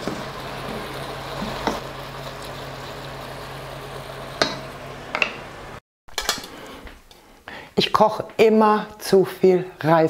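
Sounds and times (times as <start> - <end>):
vegetables sizzling in a wok: 0.0 - 6.6.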